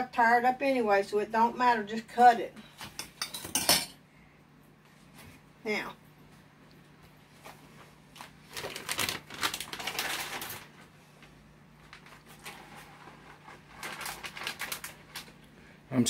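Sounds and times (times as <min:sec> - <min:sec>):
plastic bag crinkling: 0:08.1 - 0:15.4.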